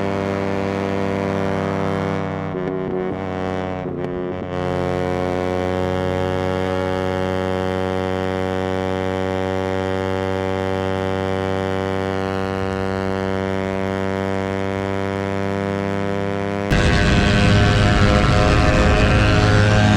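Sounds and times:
motorcycle engine at high revs: 0:00.0 - 0:19.9
wind noise: 0:16.7 - 0:19.9.

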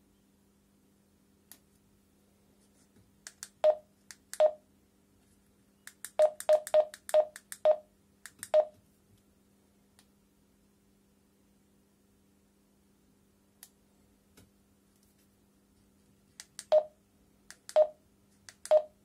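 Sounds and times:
radio keypad beeps: 0:06.2 - 0:07.8, 0:18.7 - 0:18.9.

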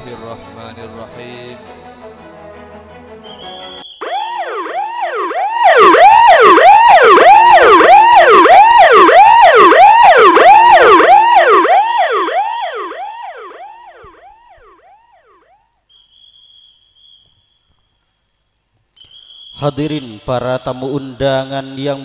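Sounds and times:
siren wailing: 0:03.8 - 0:15.7.

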